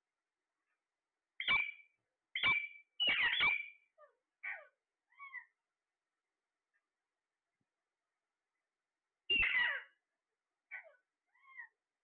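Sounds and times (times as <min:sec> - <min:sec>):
parakeet calls: 0:01.4 - 0:01.8, 0:02.4 - 0:03.8, 0:04.4 - 0:05.5, 0:09.3 - 0:10.0, 0:10.7 - 0:11.8.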